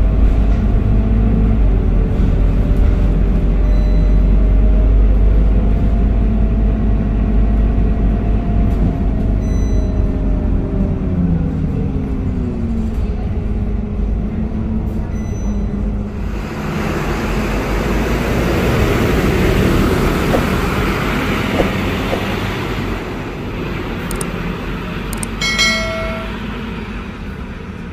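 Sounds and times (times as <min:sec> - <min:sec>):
bus diesel engine: 0:00.0 - 0:27.9
short pitched tone: 0:25.4 - 0:26.4.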